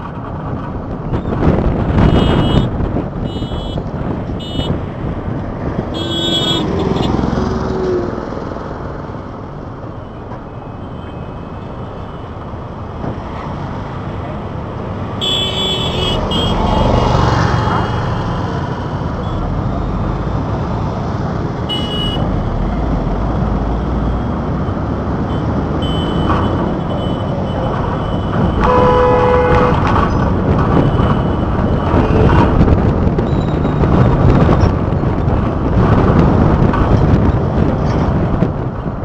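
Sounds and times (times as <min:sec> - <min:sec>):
engine and tyre rumble: 0:00.0 - 0:39.0
vehicle horn honking: 0:02.0 - 0:03.8, 0:04.4 - 0:04.7, 0:05.9 - 0:07.1, 0:15.2 - 0:16.6, 0:21.7 - 0:22.2, 0:28.5 - 0:29.9.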